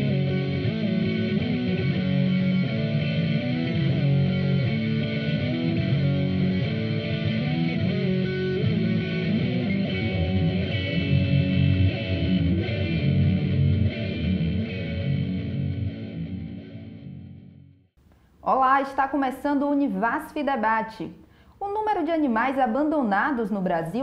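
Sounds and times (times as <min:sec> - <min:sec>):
instrumental guitar music: 0:00.0 - 0:17.9.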